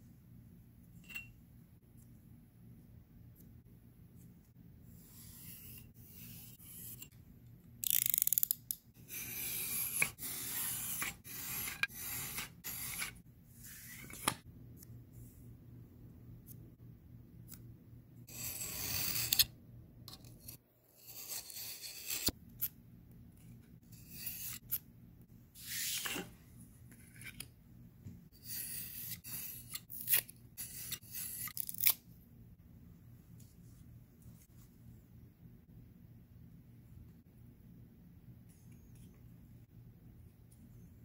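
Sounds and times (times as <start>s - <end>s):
foam board cutting strokes: 9.0s - 14.1s.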